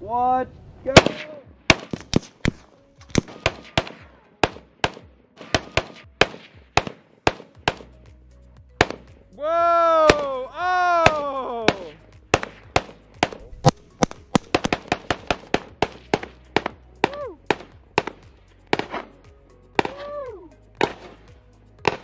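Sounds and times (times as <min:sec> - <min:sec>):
rifle shots: 0:01.0 - 0:08.0, 0:08.8 - 0:09.2, 0:11.0 - 0:19.2, 0:20.8 - 0:22.0.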